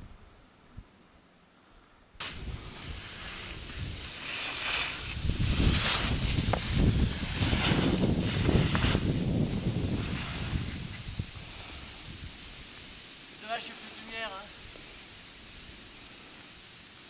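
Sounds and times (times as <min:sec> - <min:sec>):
wind buffeting microphone: 0:02.2 - 0:13.1
skis scraping across snow: 0:02.2 - 0:17.0.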